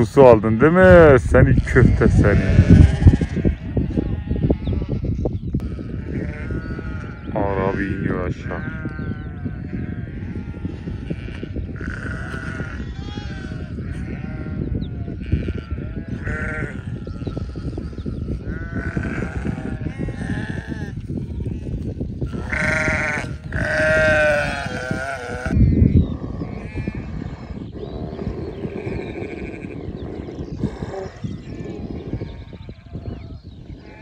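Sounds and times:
sheep bleating: 1.4 - 27.3, 28.7 - 29.9.

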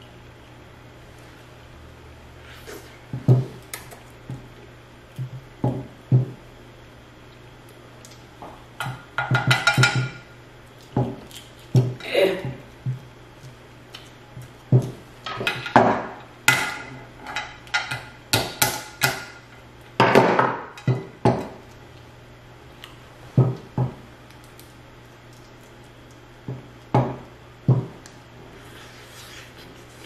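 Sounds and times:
crab shells cracking: 24.2 - 26.3.

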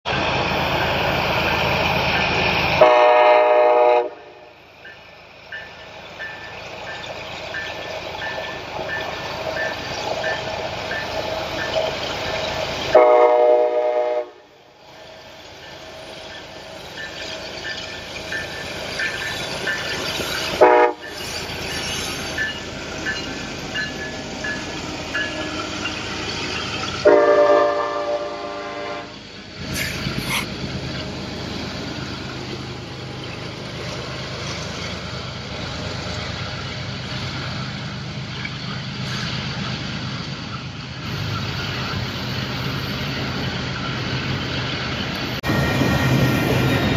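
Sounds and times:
train cars rumbling on rails: 0.1 - 46.9
locomotive air horn: 2.8 - 4.5, 12.9 - 14.5, 20.6 - 21.0, 27.0 - 29.2.

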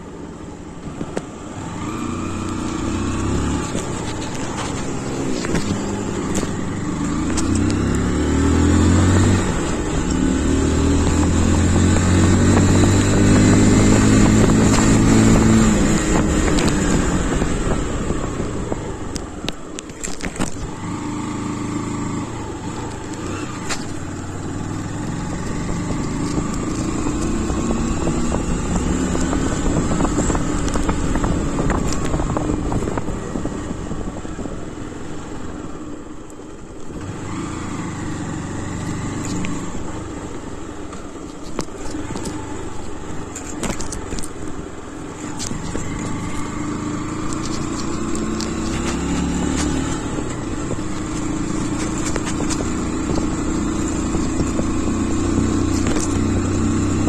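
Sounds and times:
motorcycle engine revving: 0.0 - 57.0
wind on microphone: 8.6 - 19.6, 23.3 - 34.7.

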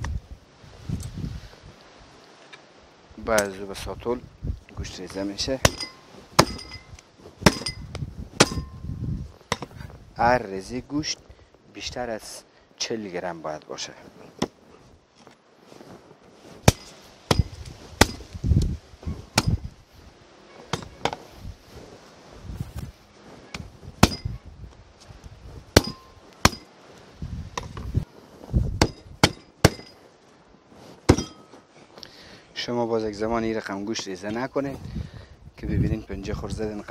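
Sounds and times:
dull heavy thuds: 5.5 - 10.0, 16.5 - 19.8, 27.5 - 30.0, 30.9 - 31.7
cleaver chopping on wooden block: 25.8 - 26.6.

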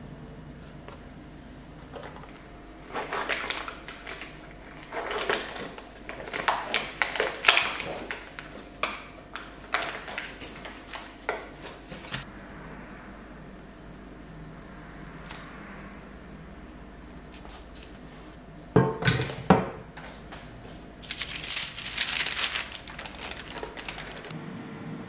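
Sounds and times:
plastic film crinkling: 2.9 - 12.2, 21.0 - 24.3.

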